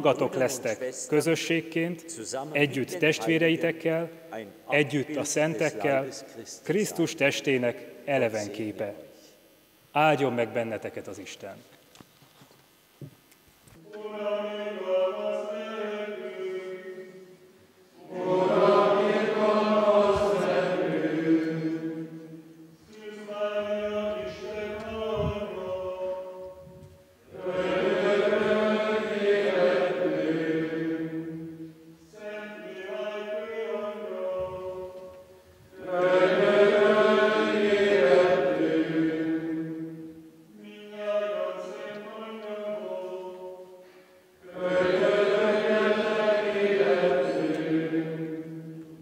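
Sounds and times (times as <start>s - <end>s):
man chanting plainchant: 0.0s - 9.1s, 22.9s - 26.5s, 40.5s - 43.6s
men's choir chanting: 13.8s - 17.3s, 18.0s - 26.5s, 27.3s - 43.7s, 44.4s - 48.8s.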